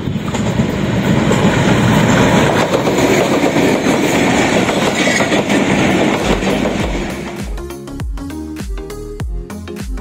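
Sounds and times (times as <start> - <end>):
wheels clicking over track: 0.0 - 7.2
passenger train rumbling: 0.0 - 8.0.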